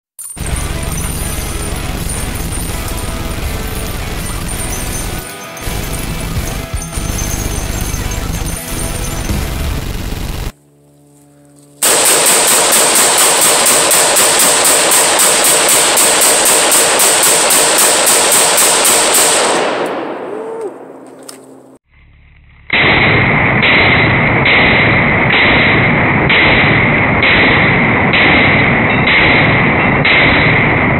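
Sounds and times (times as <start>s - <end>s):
rapid gunshots: 0.4s - 10.5s, 11.8s - 21.0s, 22.8s - 30.9s
muffled pulsing sound: 0.4s - 10.6s, 21.8s - 25.3s.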